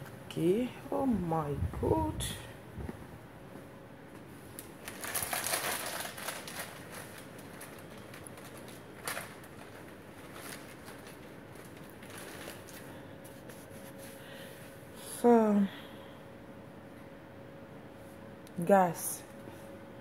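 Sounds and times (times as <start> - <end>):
low room noise: 0.0 - 20.0
rustling handling noise: 2.8 - 14.9.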